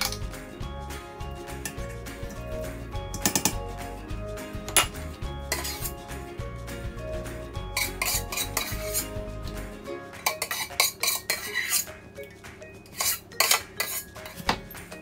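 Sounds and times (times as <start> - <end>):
metal spoon clinking on pot: 0.0 - 0.2, 3.1 - 3.6, 4.7 - 6.0, 7.7 - 9.1, 10.2 - 15.0.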